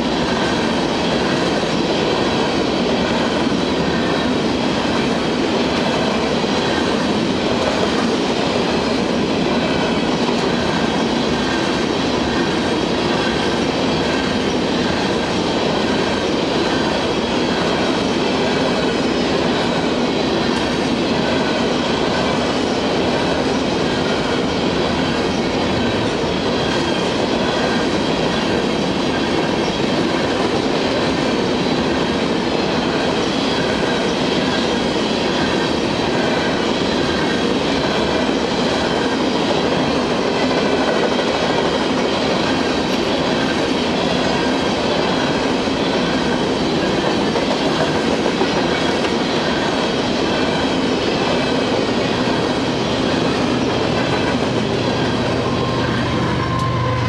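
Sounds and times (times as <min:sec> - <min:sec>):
diesel locomotive engine hum: 0:00.0 - 0:57.0
steel train wheels rumbling on rail: 0:00.0 - 0:57.0
high-pitched wheel squeal: 0:55.4 - 0:57.0.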